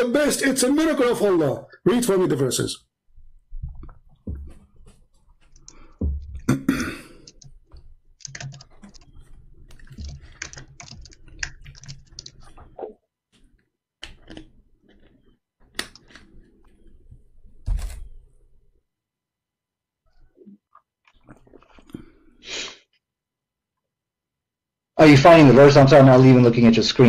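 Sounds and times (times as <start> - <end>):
typing on computer keyboard: 7.1 - 12.8.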